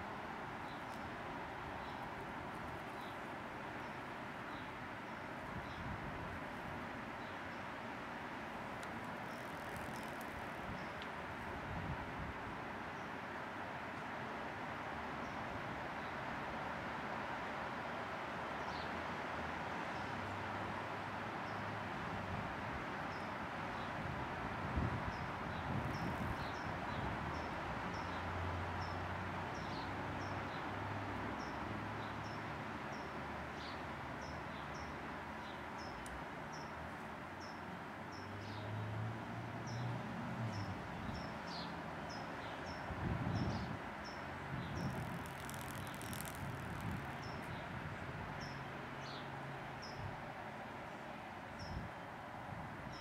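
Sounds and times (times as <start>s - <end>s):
small bird chipping: 44.7s - 47.5s.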